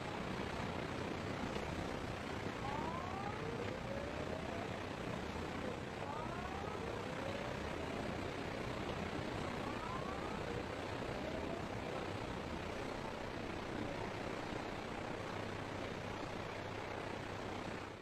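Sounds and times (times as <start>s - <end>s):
road traffic: 0.0s - 18.0s
short rising siren-like tones: 2.5s - 14.2s.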